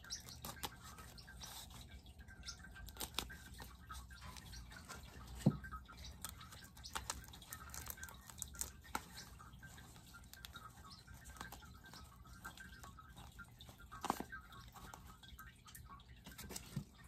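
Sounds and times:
paper crinkling: 0:02.6 - 0:15.2.

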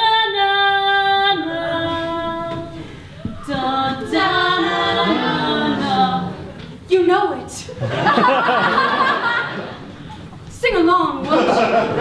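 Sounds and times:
wordless a cappella singing: 0:00.0 - 0:06.8.

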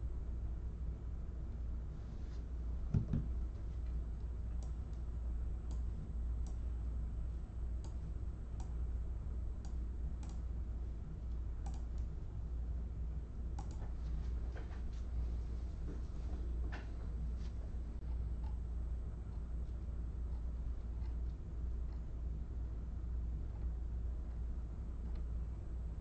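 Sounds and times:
low hum: 0:00.0 - 0:26.0
faint clicks: 0:11.3 - 0:12.1, 0:13.6 - 0:14.0.

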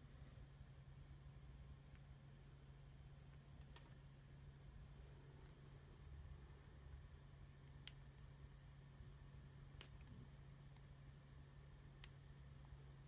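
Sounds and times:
steady low hum: 0:00.0 - 0:13.0
small sharp clicks: 0:03.4 - 0:04.0, 0:07.7 - 0:08.4, 0:09.3 - 0:10.9, 0:11.9 - 0:12.4.

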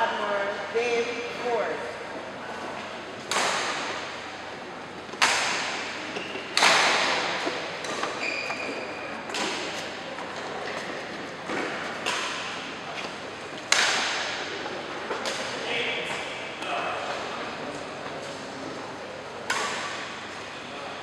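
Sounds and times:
rackets striking shuttlecocks: 0:03.2 - 0:04.2, 0:05.1 - 0:16.7, 0:19.5 - 0:20.2.

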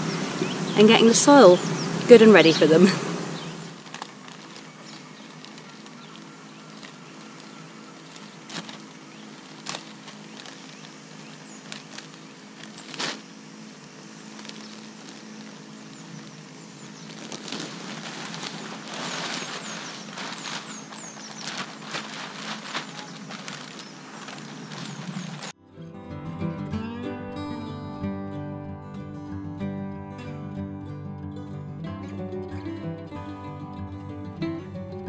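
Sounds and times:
compost rustling and pouring: 0:00.0 - 0:25.6
plastic bag crackling: 0:02.4 - 0:25.6.

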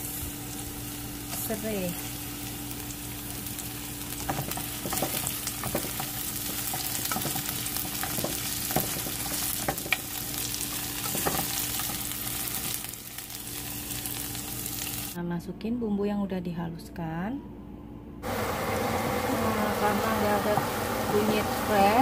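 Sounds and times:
aromatics sizzling in hot oil: 0:00.0 - 0:15.2, 0:18.2 - 0:22.0
spatula scraping and knocking wok: 0:04.2 - 0:10.0.

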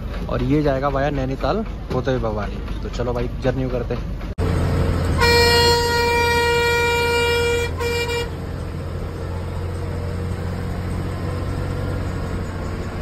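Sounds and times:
bus engine and road noise: 0:00.0 - 0:13.0
bus horn blasts: 0:05.1 - 0:09.0.

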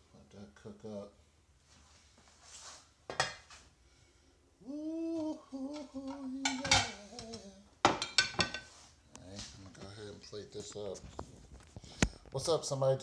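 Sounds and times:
person humming: 0:04.6 - 0:07.8
metal utensils clinking on cookware: 0:06.4 - 0:07.0, 0:07.9 - 0:08.7.

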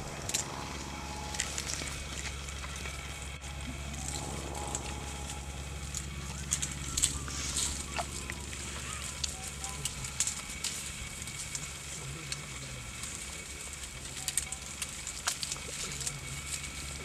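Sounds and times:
leaves and twigs crackling: 0:00.0 - 0:17.0
low steady hum: 0:00.0 - 0:17.0.

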